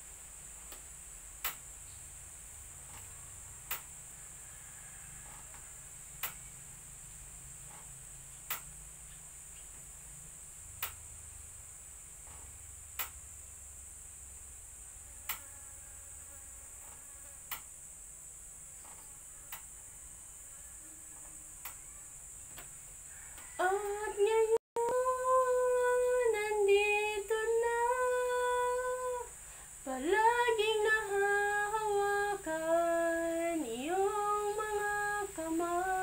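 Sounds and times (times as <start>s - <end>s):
insect drone: 0.0s - 36.0s
sharp clicks: 6.2s - 6.4s, 8.4s - 8.7s, 10.8s - 11.0s.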